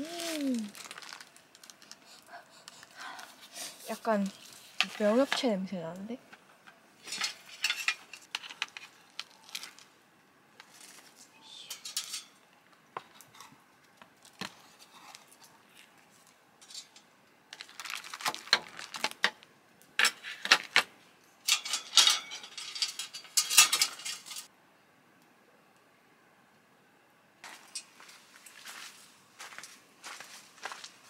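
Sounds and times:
small hard objects clinking: 0.0s - 2.0s.

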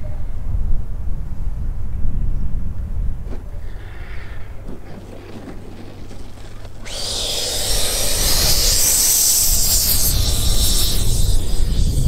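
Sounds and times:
electric ducted fan whining: 4.4s - 12.0s.

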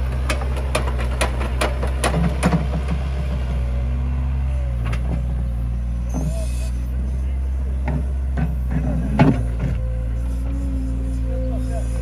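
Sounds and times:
excavator diesel engine running: 0.0s - 12.0s
excavator bucket clanking: 0.2s - 3.1s, 7.8s - 9.9s.

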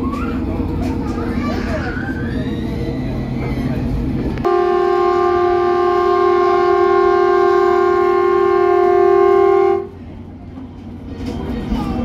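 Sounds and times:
train horn blast: 4.4s - 10.0s.

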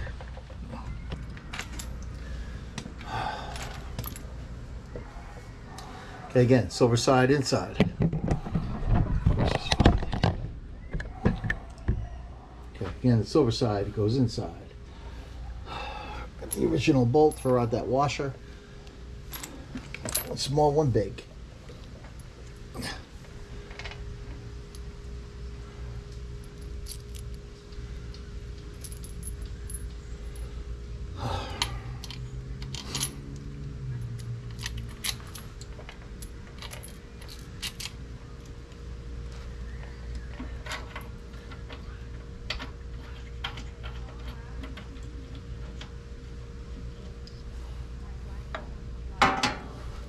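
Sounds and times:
faint hum: 0.0s - 50.0s
metal bolts clinking and rattling: 19.3s - 20.5s, 28.6s - 30.4s, 31.6s - 33.3s, 34.0s - 38.5s.

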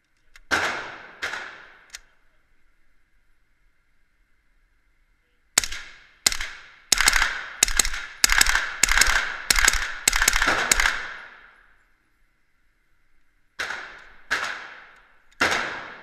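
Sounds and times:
suppressed rifle shots: 0.4s - 2.0s, 5.6s - 11.6s, 13.6s - 16.0s.

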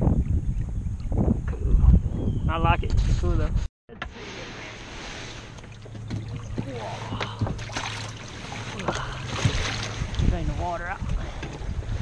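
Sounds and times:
low steady hum: 3.9s - 12.0s
light knocks and splashes: 4.0s - 12.0s
water washing: 4.1s - 12.0s.

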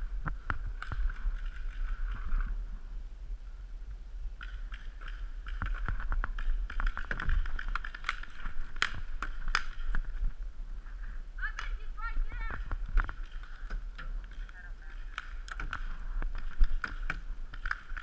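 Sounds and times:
paintball markers firing: 4.4s - 10.1s, 11.5s - 18.0s.

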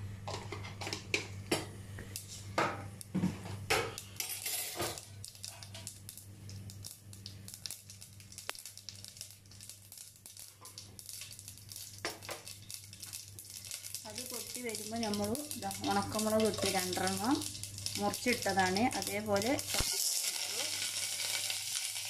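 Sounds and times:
seeds crackling in hot oil: 0.1s - 22.0s.

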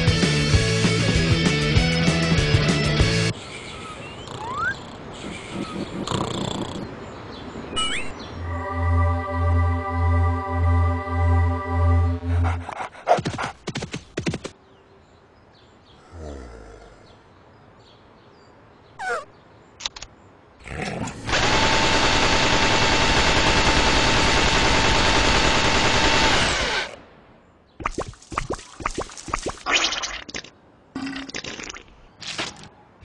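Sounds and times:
machine gun firing burst: 21.3s - 26.9s.

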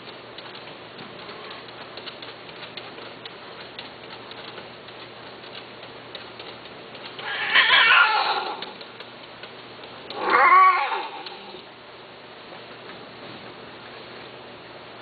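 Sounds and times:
cat meowing: 7.2s - 8.8s, 10.1s - 11.6s.

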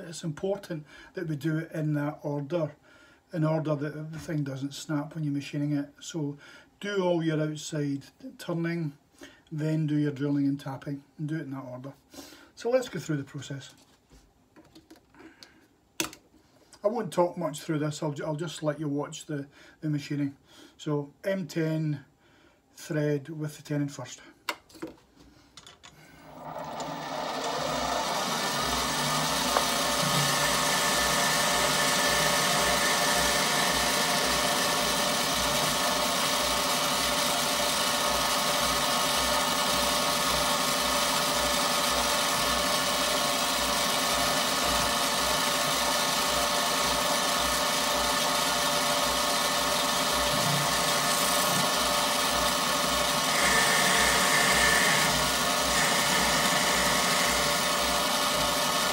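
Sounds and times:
lathe motor hum and whine: 26.2s - 58.9s.

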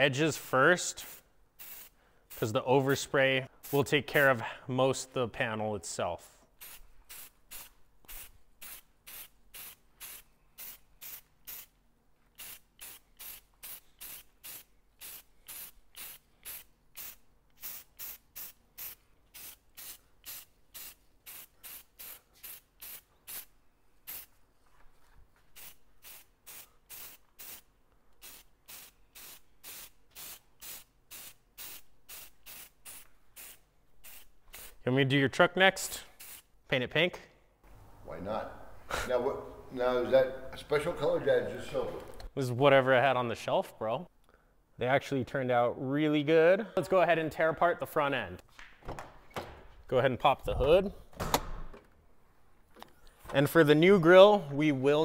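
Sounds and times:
spray paint hissing bursts: 0.8s - 3.0s, 3.6s - 4.3s, 6.6s - 11.7s, 12.4s - 24.4s, 25.5s - 34.8s, 36.0s - 36.5s.

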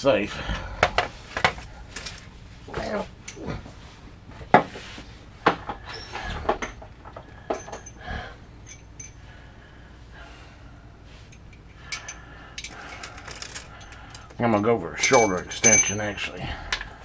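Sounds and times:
metal tool parts clinking: 7.5s - 8.0s, 8.6s - 9.2s, 11.3s - 16.4s.

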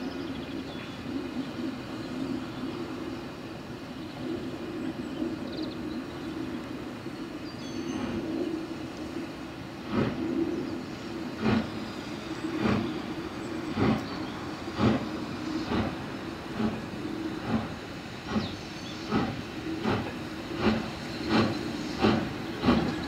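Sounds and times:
steam locomotive chuffing: 0.0s - 23.0s.

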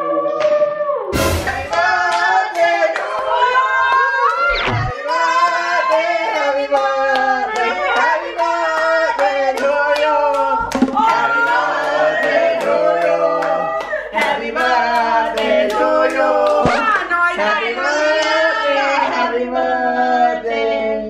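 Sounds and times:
group singing: 0.0s - 21.0s
hand claps: 6.7s - 15.8s.

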